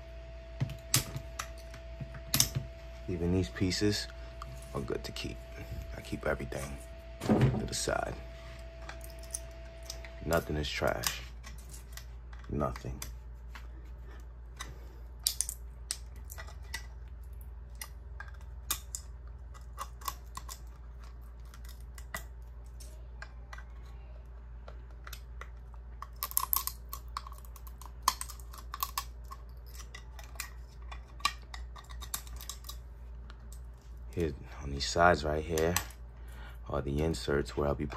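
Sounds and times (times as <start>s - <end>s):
low steady hum: 0.0s - 37.9s
metal blade clicking and scraping plastic: 17.7s - 23.9s, 26.0s - 32.8s.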